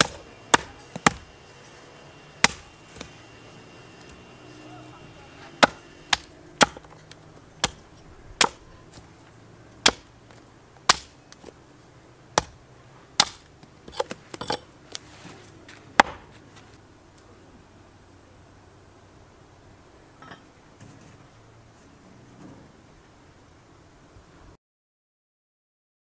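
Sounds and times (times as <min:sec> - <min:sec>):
axe chopping wood: 0:00.0 - 0:01.3, 0:02.4 - 0:03.2, 0:05.6 - 0:09.1, 0:09.8 - 0:11.6, 0:12.3 - 0:14.7, 0:16.0 - 0:16.4.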